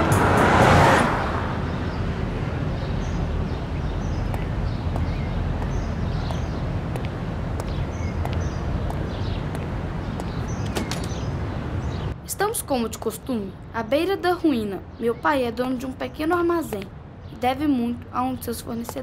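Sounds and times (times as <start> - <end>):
musical swell: 0.0 - 2.0
low street rumble: 0.0 - 19.0.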